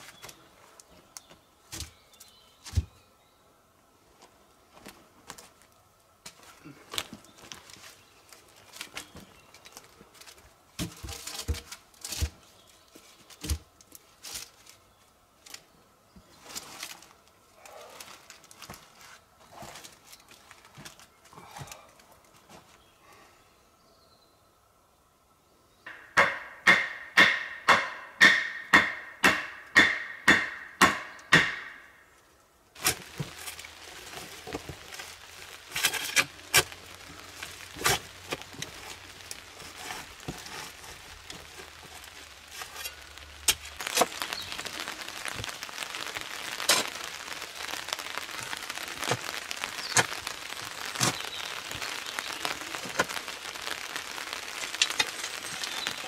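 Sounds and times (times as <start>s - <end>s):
shovel digging and scraping soil: 32.8s - 44.7s, 49.8s - 51.9s
boot footsteps crunching leaves: 32.8s - 56.0s.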